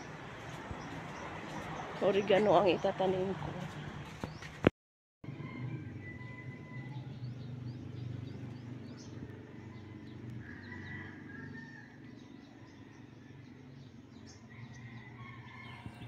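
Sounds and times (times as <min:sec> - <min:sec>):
small birds chirping: 0:06.8 - 0:16.0.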